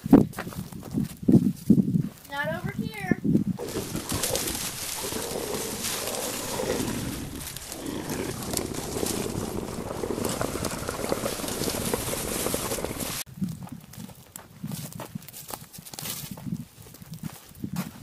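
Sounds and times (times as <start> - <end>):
rough animal growling: 3.6 - 13.3.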